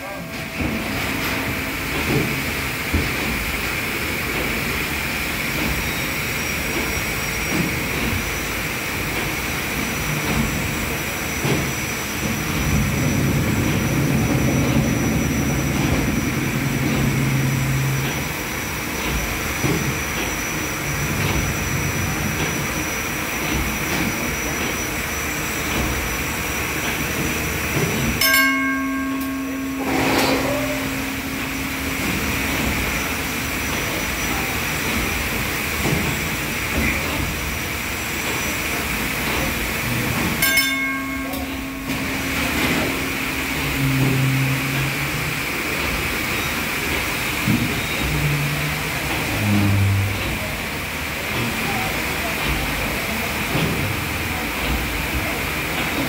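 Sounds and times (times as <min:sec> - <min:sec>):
steam engine running: 0:00.0 - 0:56.0
high steady whine: 0:11.4 - 0:19.8, 0:28.2 - 0:35.2, 0:39.9 - 0:46.6
steady low tone: 0:12.7 - 0:19.1, 0:28.2 - 0:34.6, 0:40.4 - 0:45.9, 0:48.1 - 0:50.6.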